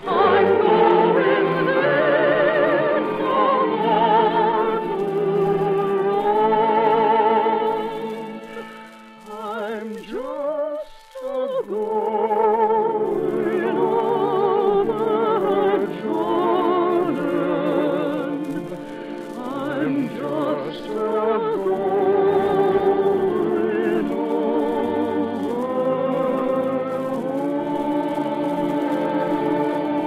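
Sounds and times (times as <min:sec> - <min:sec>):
orchestral music: 0:00.0 - 0:08.9.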